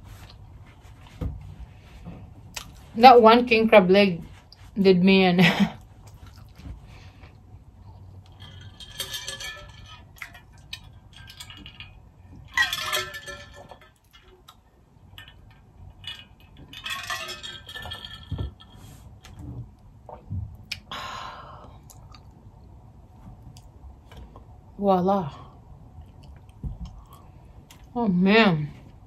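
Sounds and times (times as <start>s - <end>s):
metal bottle clinks and rattles: 8.2s - 19.5s.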